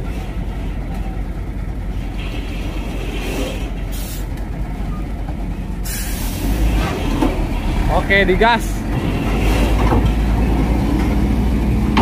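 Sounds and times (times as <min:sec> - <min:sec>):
diesel engine running: 0:00.0 - 0:12.0
air brake hiss: 0:03.9 - 0:04.3, 0:05.8 - 0:06.6.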